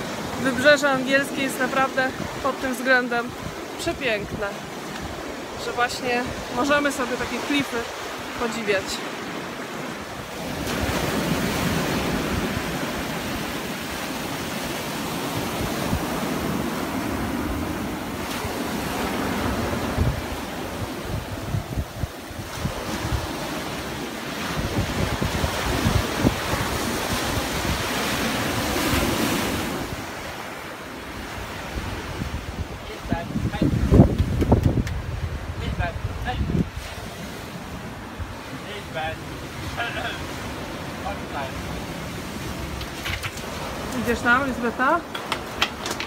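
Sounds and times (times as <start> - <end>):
surf breaking on rocks and sand: 0.0 - 46.0
wind buffeting microphone: 9.9 - 30.5, 31.1 - 38.6.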